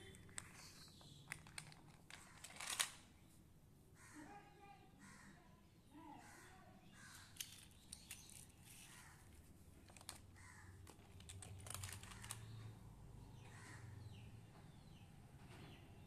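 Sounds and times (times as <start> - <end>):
plastic toys clicking: 0.0 - 3.0, 7.1 - 9.0, 9.8 - 12.7.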